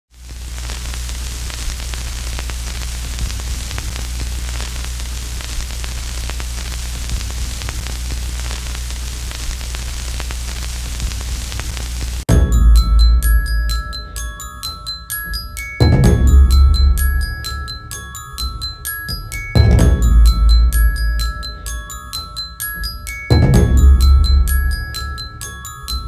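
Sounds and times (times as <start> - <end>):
faint crackles: 0.1 - 12.2
static hiss: 0.1 - 12.3
low hum: 12.3 - 14.8, 15.8 - 26.0
mallet percussion music: 12.3 - 26.0.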